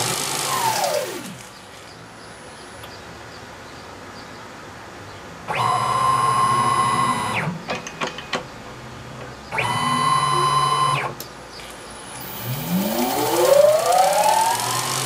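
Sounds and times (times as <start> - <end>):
lathe motors whining: 0.0 - 1.5, 5.5 - 7.6, 9.5 - 11.2, 12.0 - 15.0.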